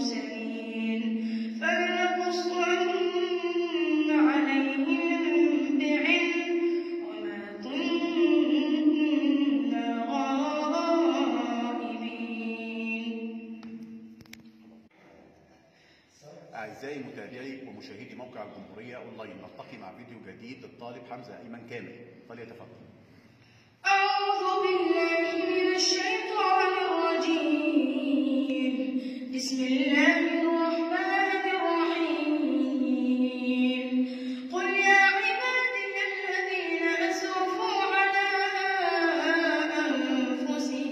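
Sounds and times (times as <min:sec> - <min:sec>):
boy chanting melodically: 0:00.0 - 0:13.6, 0:23.8 - 0:40.9.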